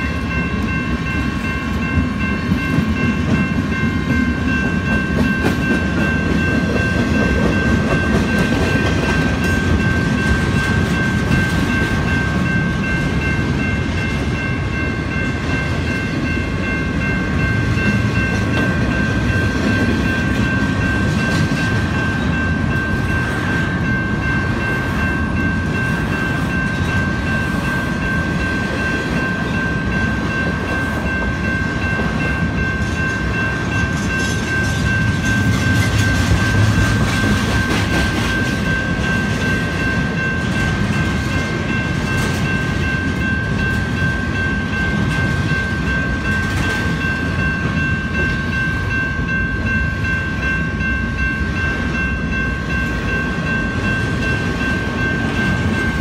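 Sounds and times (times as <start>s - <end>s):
crossing bells ringing: 0.0s - 56.0s
freight train rumbling and clattering: 0.0s - 56.0s.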